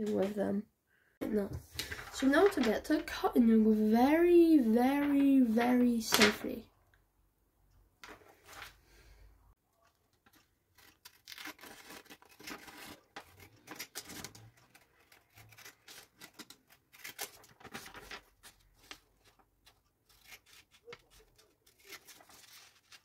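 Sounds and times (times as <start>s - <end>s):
paper rustling: 1.6s - 6.5s, 8.0s - 8.8s, 9.8s - 23.0s
scissors snipping paper: 10.2s - 18.3s, 19.7s - 23.0s.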